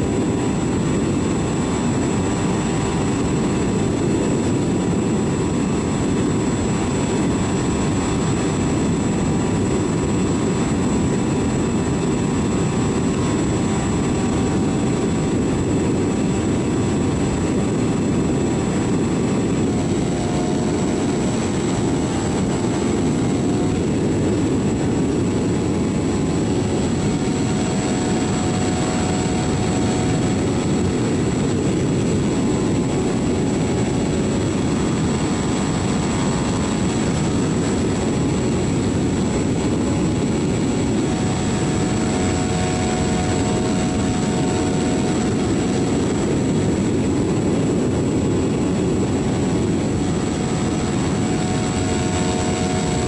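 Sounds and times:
heavy wind rush: 0.0s - 53.0s
model airplane motor and propeller: 0.0s - 53.0s.

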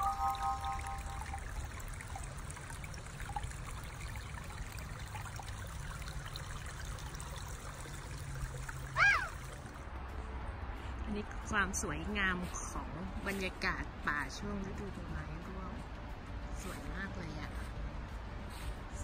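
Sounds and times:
short chime-like tone: 0.0s - 1.4s
brook trickling over rocks: 0.0s - 9.9s.

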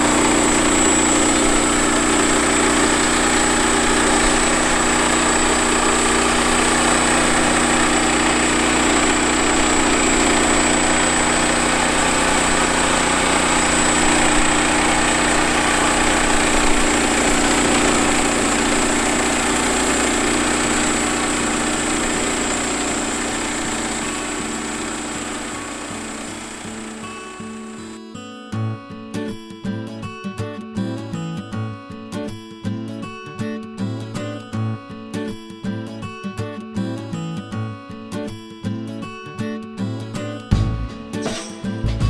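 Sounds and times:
gasoline engine running under load: 0.0s - 27.9s
thin high whine: 0.0s - 28.0s.

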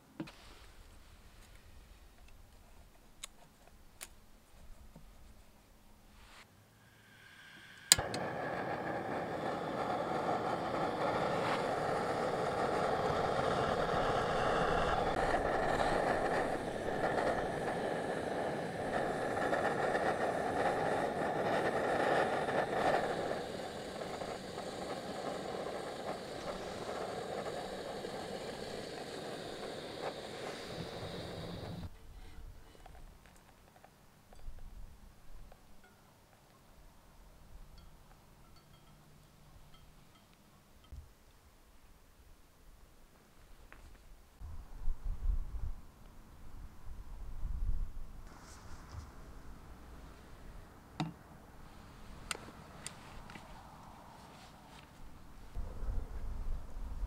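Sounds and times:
gas burner hissing: 6.2s - 32.9s, 51.5s - 57.0s
gas stove igniter click: 7.8s - 9.8s.

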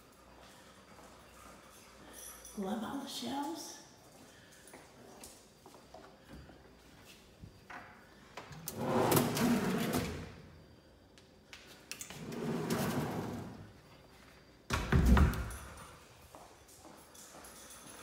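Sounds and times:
pantry unit sliding on runners: 8.5s - 10.3s, 12.1s - 13.7s.

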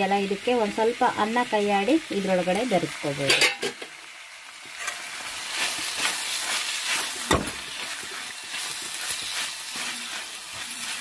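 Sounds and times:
vegetables sizzling in oil: 0.0s - 11.0s
ladle stirring and scraping: 4.8s - 11.0s.

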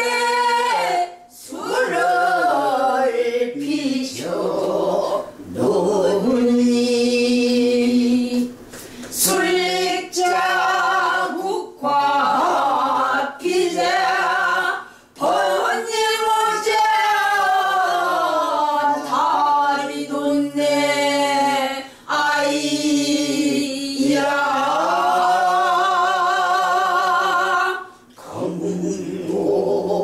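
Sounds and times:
woman singing unaccompanied: 0.0s - 8.6s, 9.2s - 29.4s.

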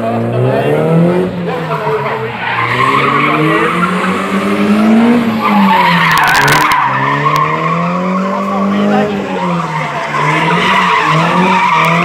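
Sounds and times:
car engine revving: 0.0s - 12.0s
tyres squealing: 5.2s - 12.0s.

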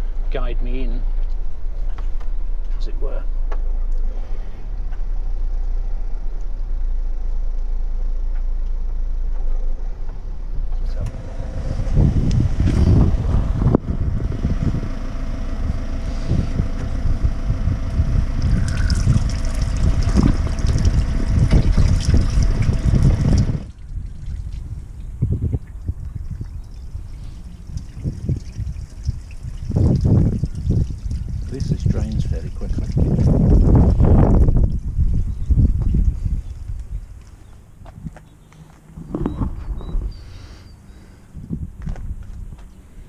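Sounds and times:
motorhome engine running: 0.0s - 43.0s
water rushing from drain valve: 15.4s - 35.2s.

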